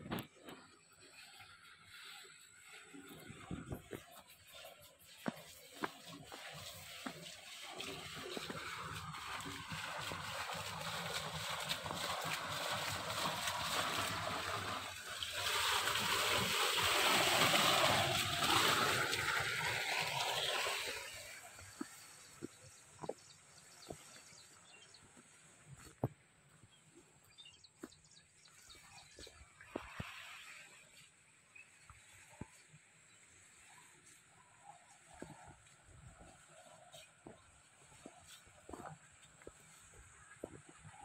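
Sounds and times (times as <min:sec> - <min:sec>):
water pouring onto rocks: 0:01.2 - 0:24.4.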